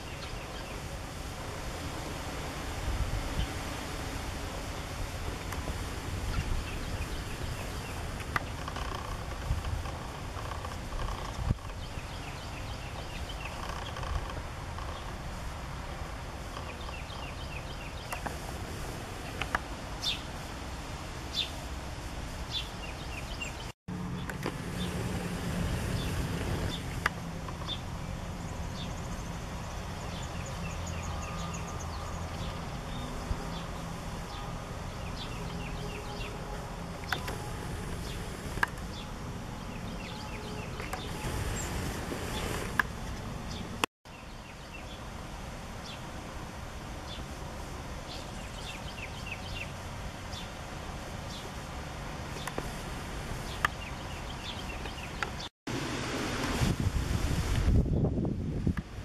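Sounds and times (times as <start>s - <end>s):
small birds chirping: 0.0s - 1.0s, 4.6s - 15.3s, 16.4s - 18.4s, 19.2s - 20.4s, 22.4s - 45.1s, 48.0s - 52.8s, 53.4s - 55.5s
low rumble of wind or traffic: 0.0s - 59.0s.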